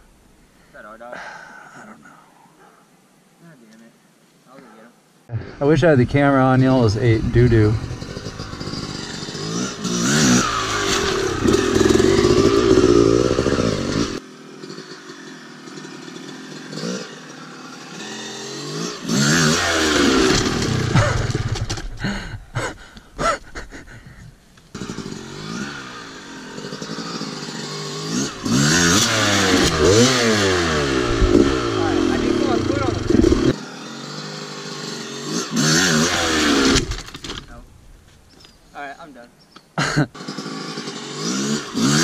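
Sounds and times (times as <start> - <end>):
dirt bike engine revving: 6.2 - 22.2, 24.7 - 37.4, 39.8 - 42.0.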